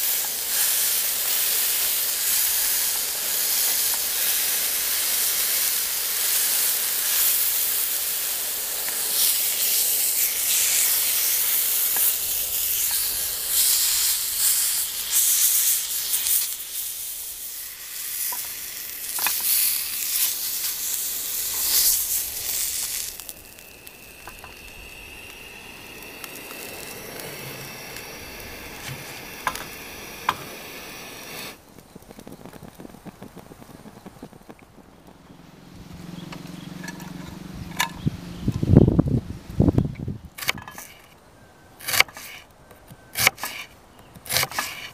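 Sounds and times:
chicken sizzling in a frying pan: 0:00.0 - 0:31.6.

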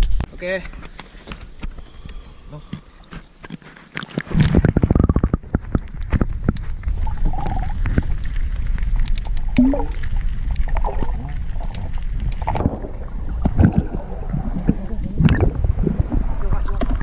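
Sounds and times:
water gurgles: 0:04.0 - 0:17.0
underwater low rumble: 0:04.3 - 0:17.0.

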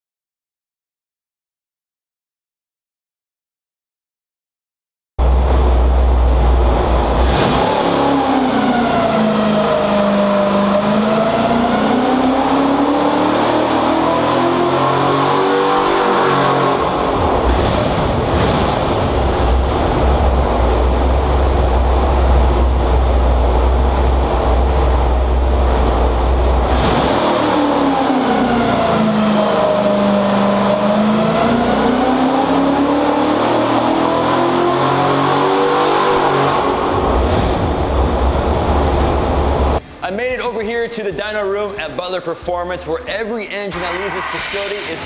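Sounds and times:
car engine running on dyno: 0:05.2 - 0:39.8.

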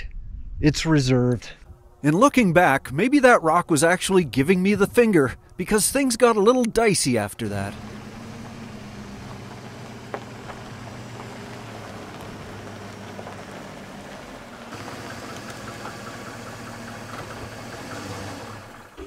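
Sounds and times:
truck engine low hum: 0:07.4 - 0:19.0.

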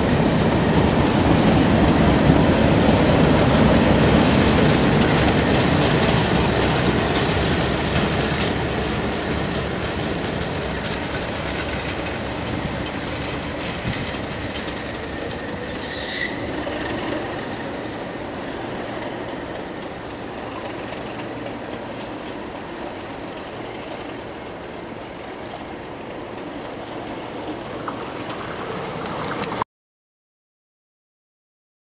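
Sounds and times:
diesel locomotives pulling train: 0:00.0 - 0:29.6
high wheel squeal: 0:15.6 - 0:16.6.

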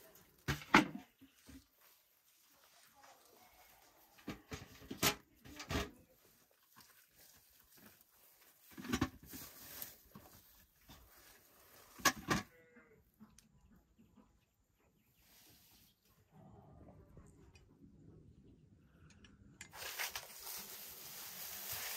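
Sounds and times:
apples knocking in metal bucket: 0:00.1 - 0:01.8, 0:04.2 - 0:06.3, 0:08.6 - 0:11.0
dry fronds crackling: 0:01.1 - 0:04.9, 0:05.5 - 0:12.1, 0:19.7 - 0:21.9.

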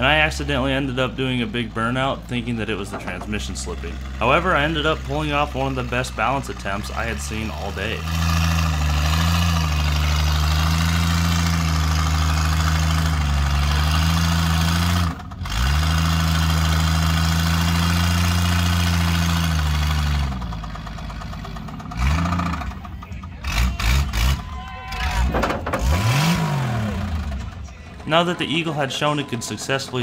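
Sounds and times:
car engine revving high: 0:03.7 - 0:20.4, 0:23.4 - 0:27.5.

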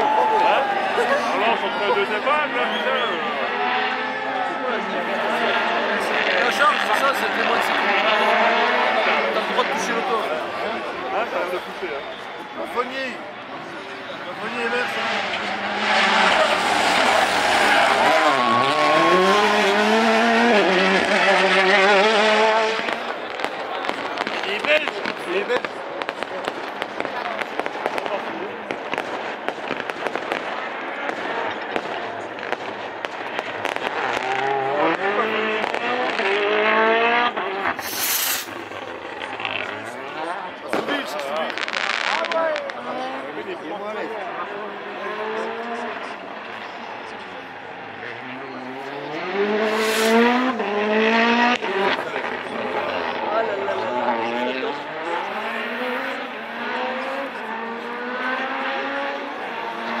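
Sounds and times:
rally car engine accelerating: 0:00.7 - 0:42.2, 0:42.8 - 1:00.0
exhaust pops and crackles: 0:15.2 - 0:43.4
brief hiss: 0:37.8 - 0:38.6, 0:49.7 - 0:50.2.

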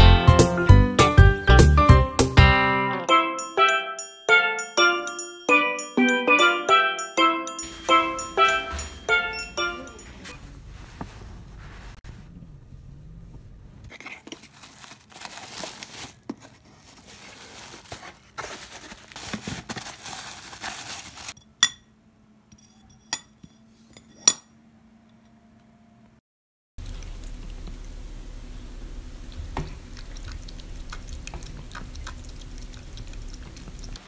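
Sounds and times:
bubble wrap crinkling: 0:13.9 - 0:21.4.

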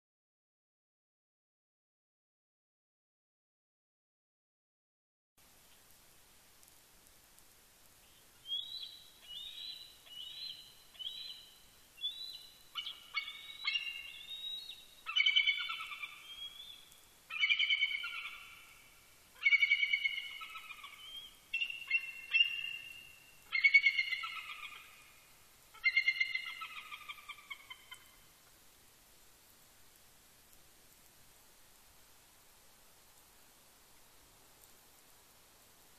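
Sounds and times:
eagle calling: 0:08.4 - 0:28.2.

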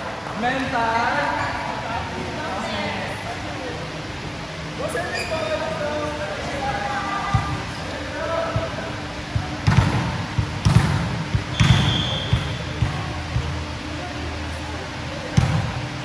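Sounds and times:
ball bouncing on gym floor: 0:08.4 - 0:13.6, 0:15.3 - 0:15.8.

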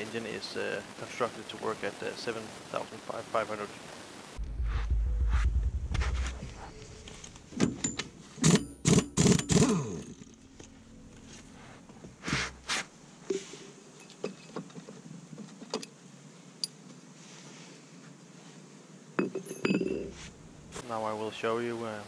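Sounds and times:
impact wrench bursts: 0:08.4 - 0:09.7.

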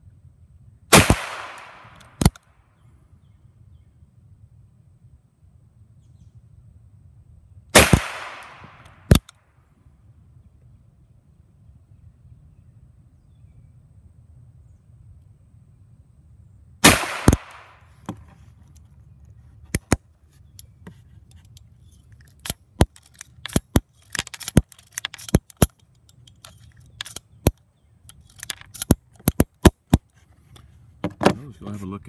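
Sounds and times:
revolver gunshot with echo: 0:00.9 - 0:02.0, 0:07.8 - 0:09.2, 0:16.8 - 0:17.8
metallic revolver clicks: 0:22.2 - 0:30.0.

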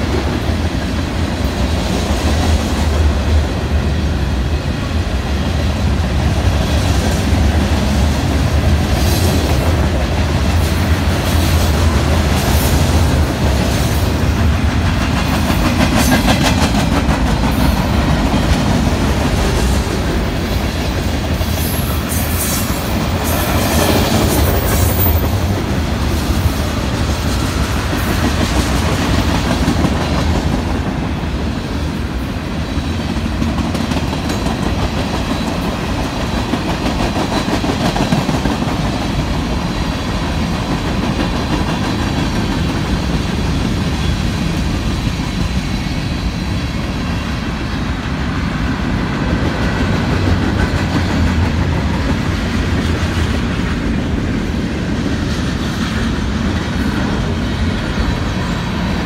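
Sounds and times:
freight train rumbling past: 0:00.0 - 0:59.0
wheels clacking over rail joints: 0:05.9 - 0:22.1.

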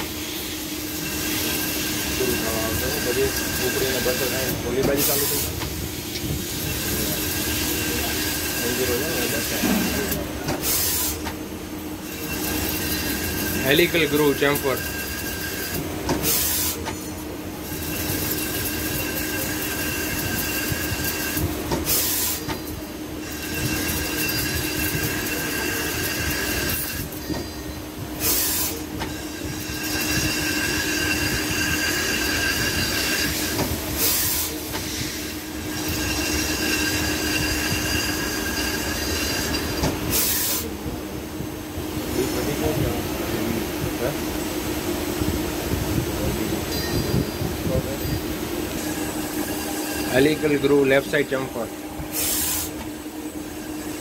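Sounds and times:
lathe humming: 0:00.0 - 0:45.0, 0:46.4 - 0:54.0
high-pitched cutting squeal: 0:00.9 - 0:05.5, 0:12.0 - 0:16.8, 0:23.2 - 0:40.7, 0:48.8 - 0:52.8.

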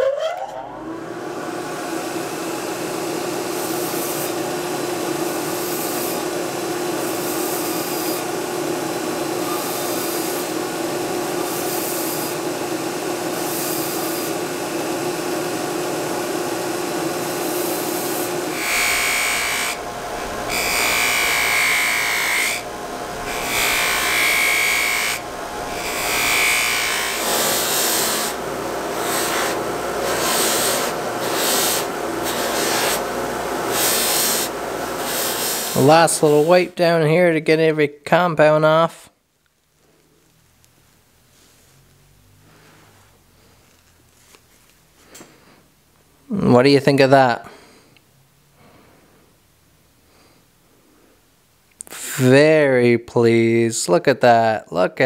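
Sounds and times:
belt grinder grinding metal: 0:00.0 - 0:36.7
buffing wheel polishing metal: 0:02.9 - 0:36.7.

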